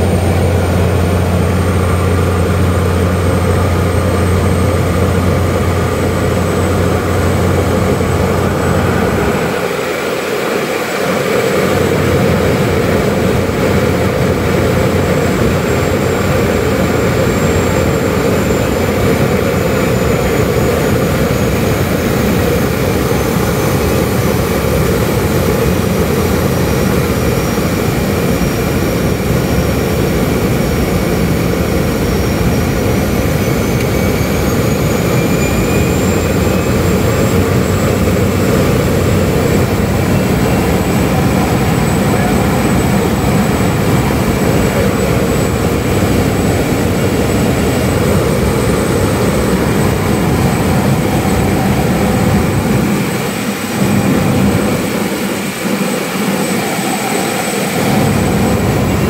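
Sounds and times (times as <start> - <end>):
propeller engine drone: 0.0 - 59.0
high thin whine: 31.4 - 59.0.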